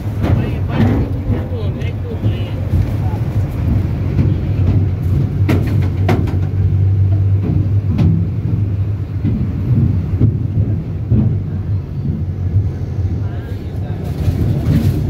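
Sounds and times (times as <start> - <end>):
clacks and rattles: 0.0 - 15.0
engine and road drone: 0.0 - 15.0.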